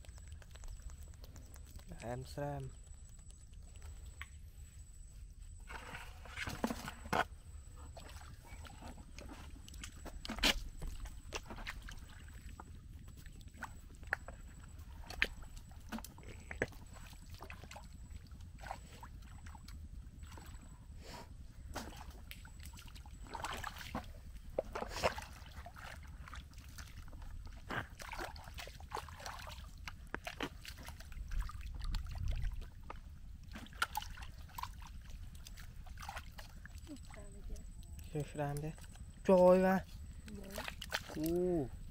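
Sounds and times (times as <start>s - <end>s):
bare feet squelching in mud: 5.4s - 17.9s, 21.6s - 41.9s.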